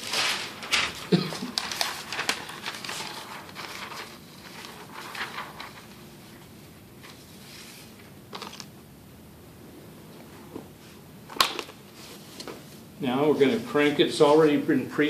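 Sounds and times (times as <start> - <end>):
paper rustling and crinkling: 0.0 - 8.7.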